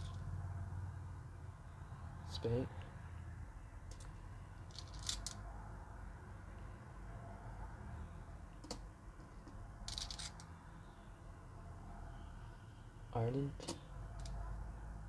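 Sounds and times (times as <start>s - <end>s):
coins clinking in a palm: 4.7s - 5.4s, 9.9s - 10.4s.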